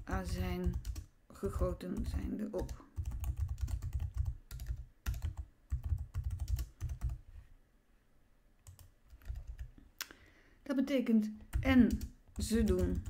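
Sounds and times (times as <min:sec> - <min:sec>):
typing on computer keyboard: 0:00.1 - 0:07.2, 0:08.6 - 0:09.7, 0:11.5 - 0:13.0.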